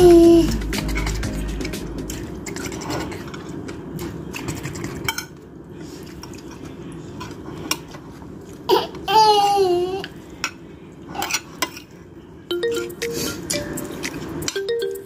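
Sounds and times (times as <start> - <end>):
cutlery scraping on plate: 2.4 - 5.3.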